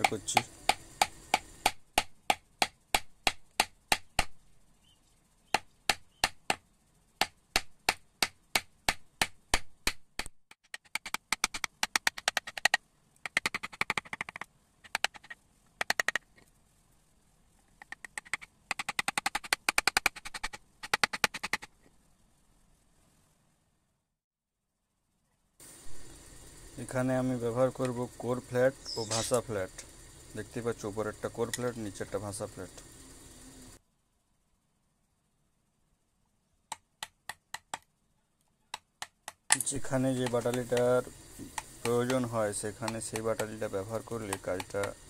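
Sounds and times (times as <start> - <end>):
chisel tapping into wood: 36.7 - 37.8, 38.7 - 39.6, 40.2 - 43.6, 44.2 - 45.0.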